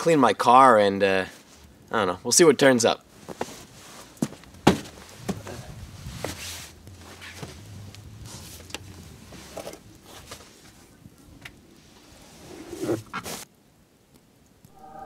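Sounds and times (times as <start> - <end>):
rustling: 3.1 - 13.5.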